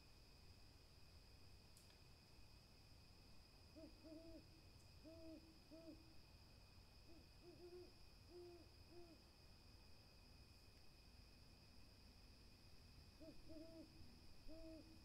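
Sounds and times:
owl hooting faintly: 0:03.7 - 0:06.2, 0:07.0 - 0:09.3, 0:13.2 - 0:15.0.

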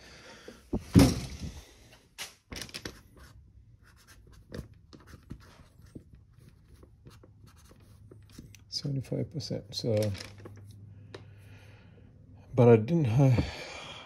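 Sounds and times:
loud thump: 0:00.8 - 0:01.6
marker pen scratching on plastic: 0:03.1 - 0:08.6.

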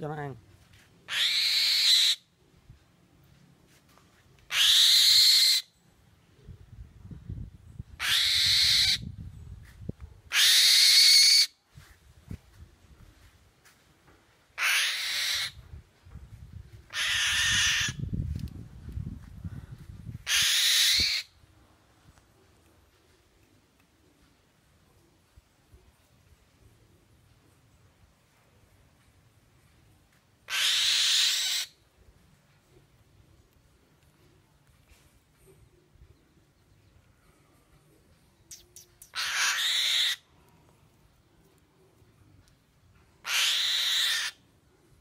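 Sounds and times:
bird screechy calls: 0:01.1 - 0:02.2, 0:04.5 - 0:05.7, 0:08.0 - 0:09.0, 0:10.3 - 0:11.5, 0:14.6 - 0:15.6, 0:16.9 - 0:18.0, 0:20.3 - 0:21.3, 0:30.5 - 0:31.8, 0:38.5 - 0:40.3, 0:43.2 - 0:44.4.

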